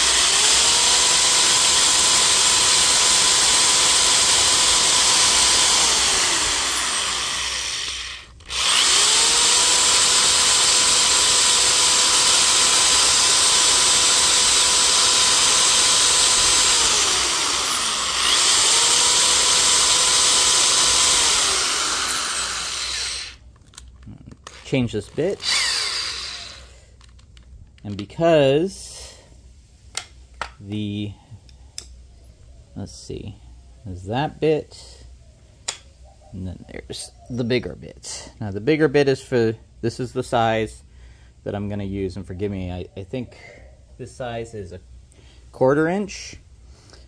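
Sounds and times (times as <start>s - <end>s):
electric drill boring into wood: 0.0s - 23.4s, 24.5s - 26.8s.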